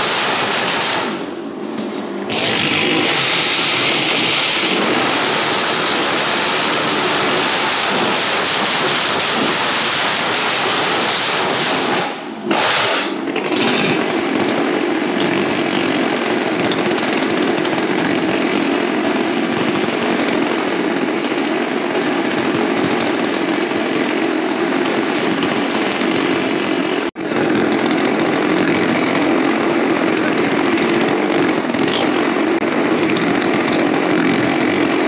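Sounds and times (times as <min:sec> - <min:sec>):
motorcycle engine at high revs: 0:00.0 - 0:35.0.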